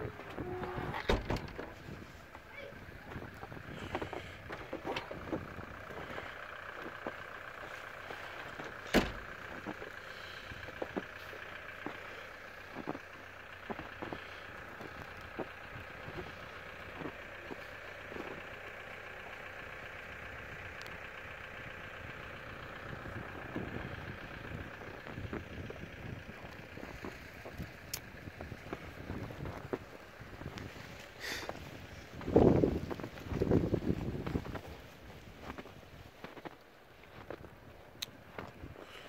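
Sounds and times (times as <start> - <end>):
footsteps crunching in snow: 10.6 - 18.4, 28.4 - 39.0.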